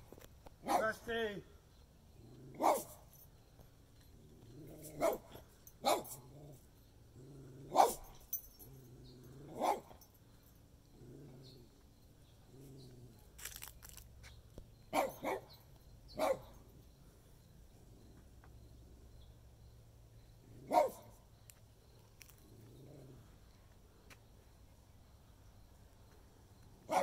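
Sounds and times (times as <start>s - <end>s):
dog barking: 0.6s - 1.0s, 2.6s - 3.0s, 4.8s - 6.2s, 7.7s - 8.2s, 9.5s - 10.0s, 14.9s - 15.6s, 16.2s - 16.6s, 20.6s - 21.1s.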